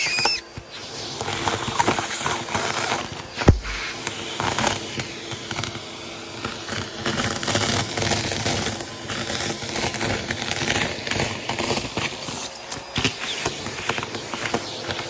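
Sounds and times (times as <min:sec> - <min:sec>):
debris crackling in vacuum nozzle: 0:00.0 - 0:15.0
vacuum cleaner motor hum: 0:00.0 - 0:15.0.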